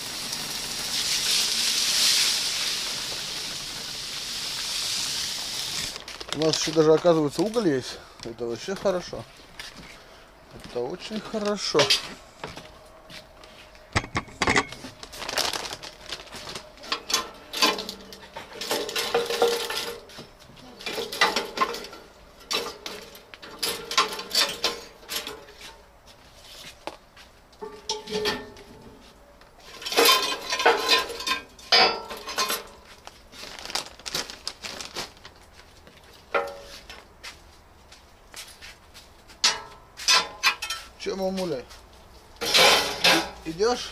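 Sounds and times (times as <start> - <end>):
metal clattering and clinking: 16.9 - 25.6, 27.6 - 28.8, 29.7 - 32.8, 39.4 - 41.0, 42.4 - 43.4.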